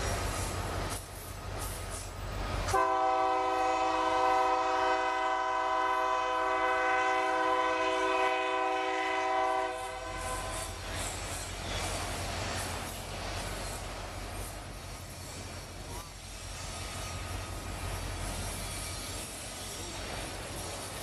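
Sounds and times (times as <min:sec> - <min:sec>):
locomotive air horn blast: 0:02.7 - 0:10.5.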